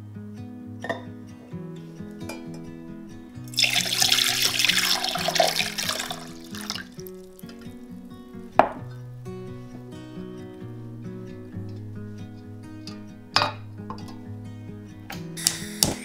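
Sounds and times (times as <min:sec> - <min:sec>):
tap water splashing into sink: 0:03.5 - 0:07.2.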